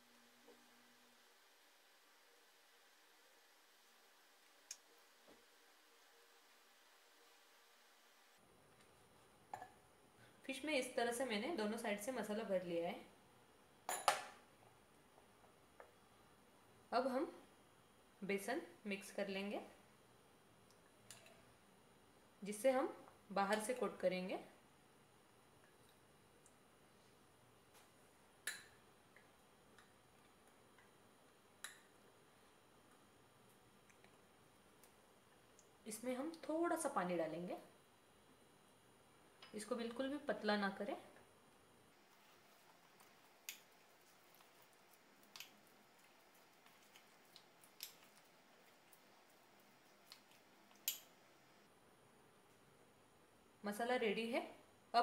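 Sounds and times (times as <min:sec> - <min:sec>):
spoon stirring thick paste: 0:42.0 - 0:51.1.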